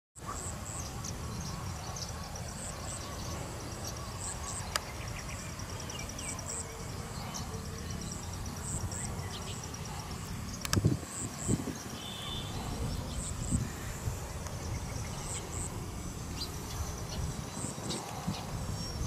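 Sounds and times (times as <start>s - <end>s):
insect trilling: 2.4s - 19.0s
wind on microphone: 8.4s - 19.0s
sharp click: 10.6s - 10.9s.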